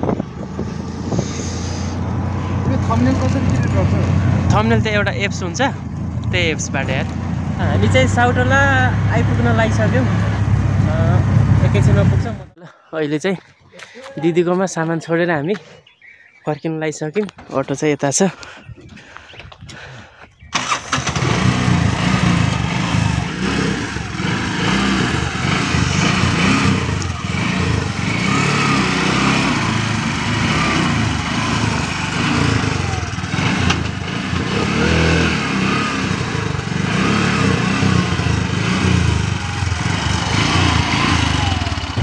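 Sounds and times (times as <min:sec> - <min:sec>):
small engine running: 0:20.6 - 0:42.0.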